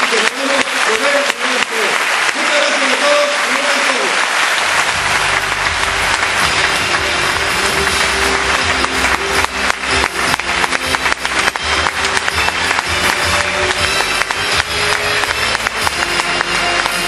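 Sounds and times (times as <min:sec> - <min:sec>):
audience applauding: 0:00.0 - 0:17.0
loud music with steady bass: 0:04.6 - 0:17.0.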